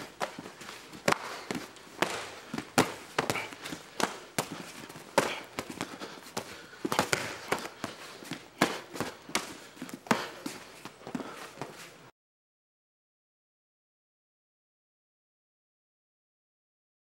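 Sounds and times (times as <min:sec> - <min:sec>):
bare feet shuffling on mat: 0:00.0 - 0:12.1
kicks and strikes smacking: 0:01.0 - 0:05.9, 0:06.9 - 0:07.9.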